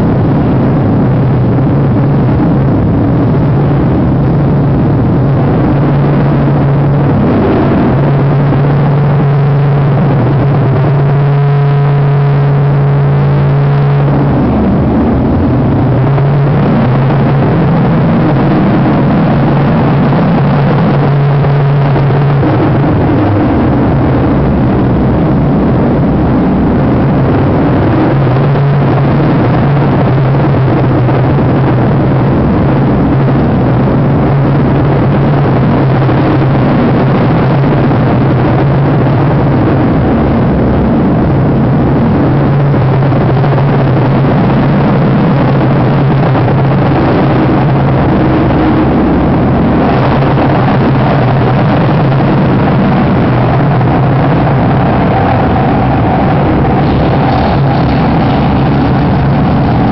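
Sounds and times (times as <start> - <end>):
distorted electronic noise: 0.0 - 59.9
low drone: 0.0 - 59.9
high held tone: 47.0 - 59.9.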